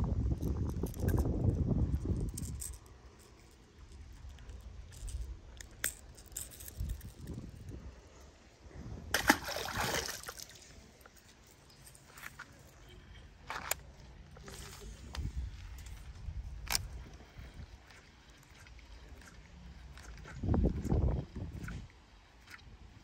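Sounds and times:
fish splashing into water: 0:09.1 - 0:10.8
small handling clicks: 0:13.4 - 0:17.2.

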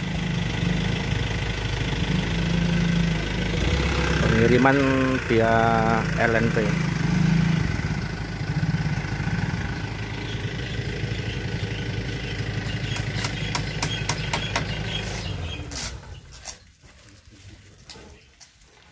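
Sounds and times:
truck engine idling: 0:00.0 - 0:16.7
sharp clicks: 0:12.9 - 0:14.7.

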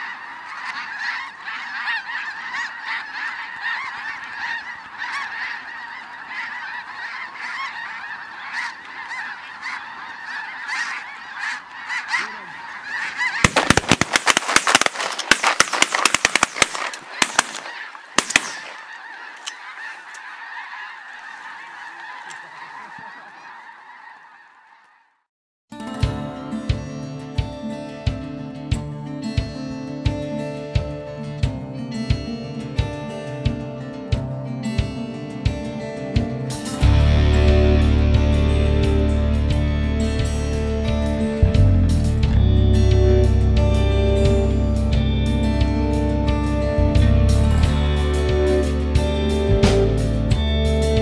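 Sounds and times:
geese honking: 0:00.0 - 0:25.2, 0:36.0 - 0:51.0
shotgun shots: 0:13.4 - 0:19.0.

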